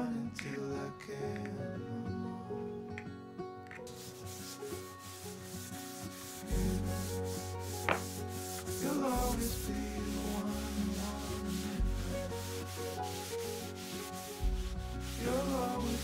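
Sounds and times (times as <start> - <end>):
faint background music: 0.0 - 16.0
sponge scrubbing wooden floor: 3.9 - 16.0
knock: 7.9 - 8.1.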